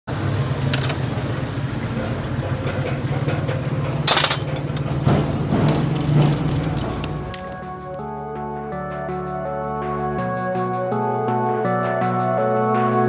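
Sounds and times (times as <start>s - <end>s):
small engine idling: 0.1s - 7.5s
loud clatter: 1.9s - 7.1s.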